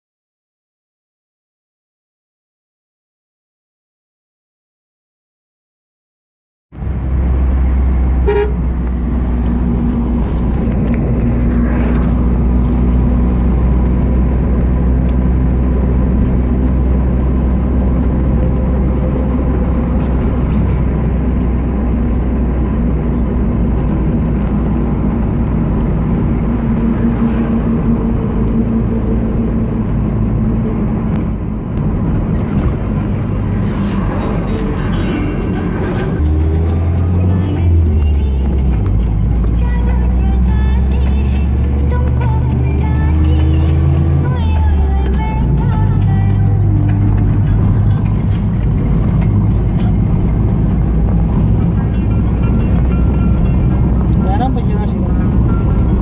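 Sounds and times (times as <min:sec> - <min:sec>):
car engine and tyre drone: 0:06.8 - 0:56.0
car horn toot: 0:08.2 - 0:08.7.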